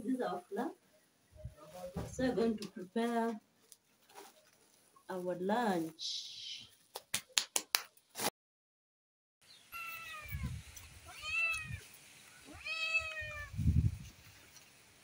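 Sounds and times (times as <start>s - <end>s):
cat meowing: 9.7s - 11.8s, 12.5s - 13.6s.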